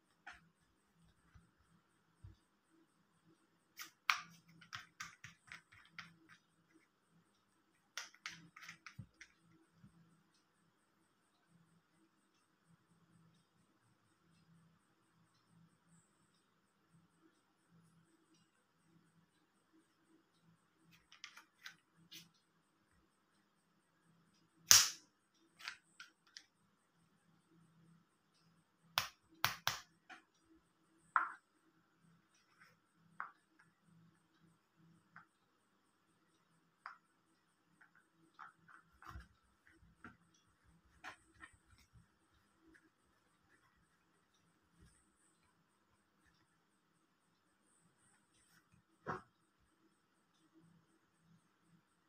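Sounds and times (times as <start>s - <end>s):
loud sharp plastic snap: 24.7s - 25.0s.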